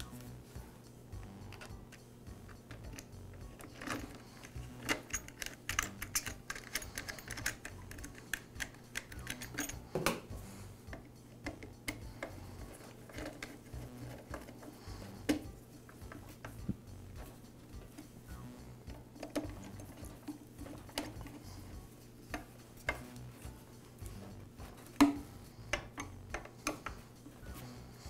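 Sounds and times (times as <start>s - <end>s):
small plastic and metal clicks: 1.5s - 9.8s.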